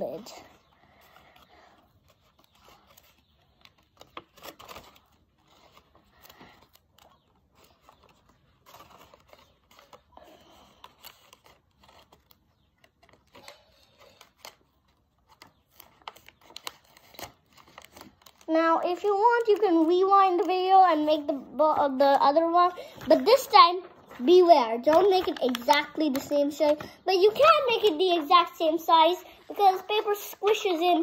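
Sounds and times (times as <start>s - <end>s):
small clicks and crackles: 0.6s - 21.4s, 24.8s - 28.3s
paper box rustling and crinkling: 1.0s - 21.8s, 22.9s - 31.0s.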